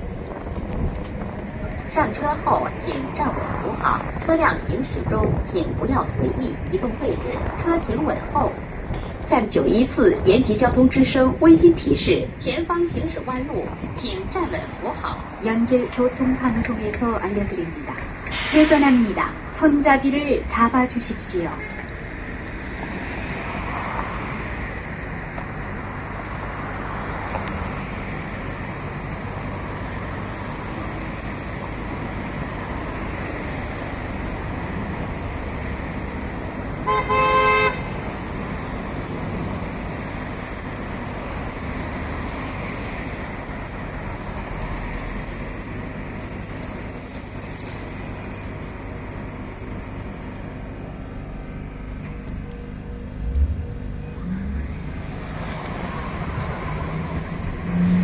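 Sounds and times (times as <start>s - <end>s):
bus engine and road noise: 0.0s - 58.0s
vehicle horn honk: 36.8s - 37.9s.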